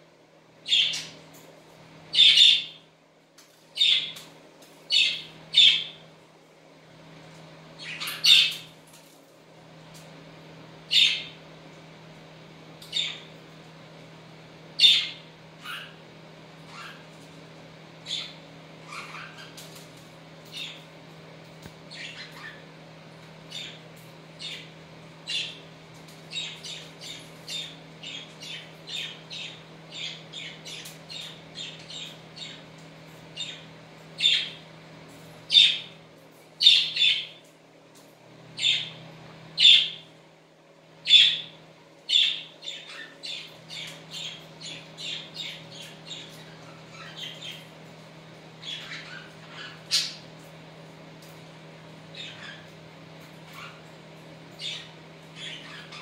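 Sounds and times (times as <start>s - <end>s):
budgerigars chirping and squawking: 0.7s - 1.2s, 2.1s - 2.8s, 3.8s - 4.3s, 4.9s - 6.0s, 7.8s - 8.7s, 10.9s - 11.4s, 12.8s - 13.3s, 14.8s - 16.0s, 16.6s - 17.1s, 18.0s - 19.8s, 20.4s - 20.8s, 21.9s - 22.7s, 23.5s - 34.6s, 35.5s - 36.0s, 36.6s - 37.4s, 38.6s - 39.0s, 39.6s - 40.0s, 41.0s - 47.8s, 48.6s - 50.4s, 52.1s - 53.9s, 54.5s - 56.0s.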